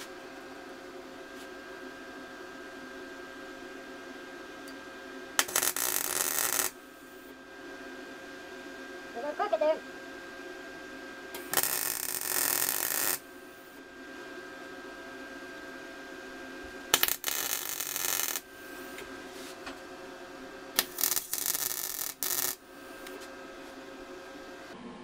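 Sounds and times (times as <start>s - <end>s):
welding arc crackling: 5.4s - 6.8s, 11.4s - 13.3s, 16.9s - 18.5s, 20.8s - 23.2s.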